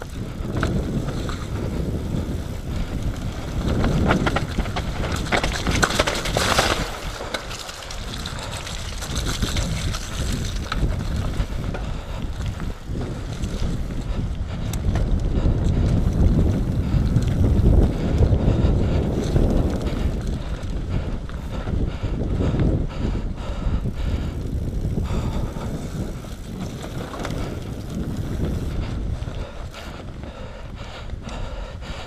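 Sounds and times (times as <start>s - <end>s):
tyres rumbling on dirt: 0.0s - 21.5s, 24.2s - 29.5s
bike clicks and rattles: 0.0s - 32.0s
wind buffeting microphone: 0.0s - 32.0s.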